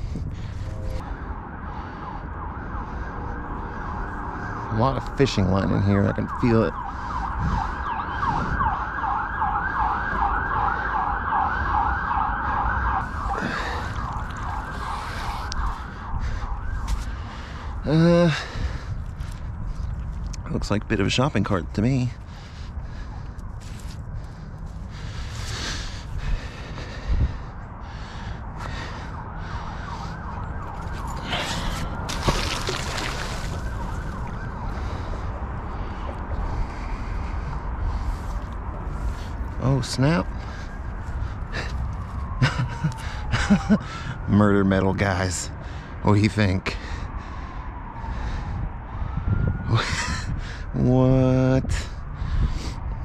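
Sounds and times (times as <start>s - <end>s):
low wind rumble: 0.0s - 53.0s
siren yelping: 0.5s - 19.2s, 22.1s - 46.0s, 46.8s - 50.9s
splash in river: 32.1s - 33.7s.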